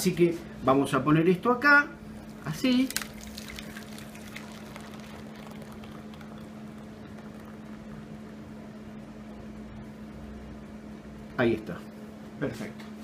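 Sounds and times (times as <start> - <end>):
liquid pouring into metal pan: 2.2 - 8.5.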